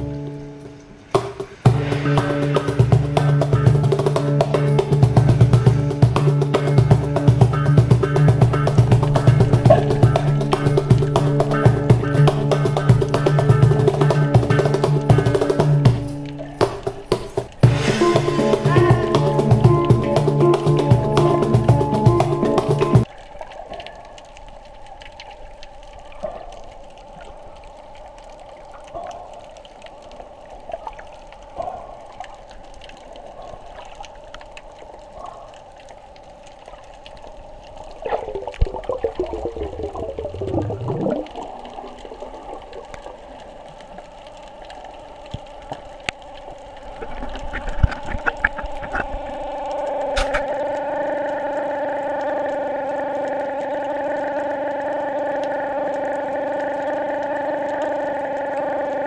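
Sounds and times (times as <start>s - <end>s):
bubbling gurgle: 0.0s - 59.0s
crackling clicks: 0.0s - 59.0s
underwater hum: 0.0s - 59.0s
small underwater knocks: 0.6s - 24.0s, 38.0s - 44.1s, 46.8s - 50.5s.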